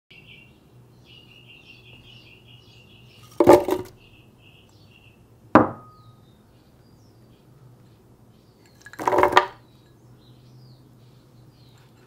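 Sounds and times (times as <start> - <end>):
birds chirping: 0.1 - 12.0
frozen fruit clattering in blender jar: 3.2 - 3.9, 8.7 - 9.6
sharp knock with ringing tone: 5.6 - 6.1.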